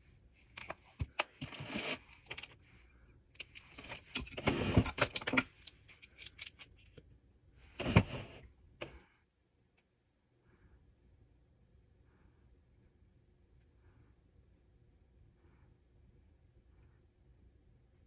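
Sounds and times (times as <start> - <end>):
plastic items clicking and rattling: 0.5 - 2.6, 3.4 - 7.0.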